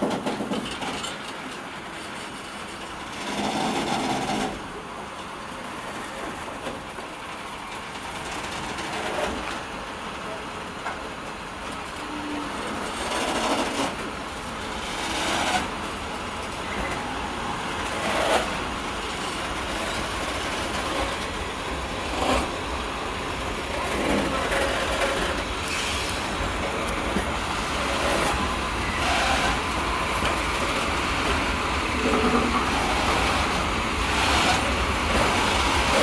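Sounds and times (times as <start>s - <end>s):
freight train wheels clattering: 0.0s - 36.0s.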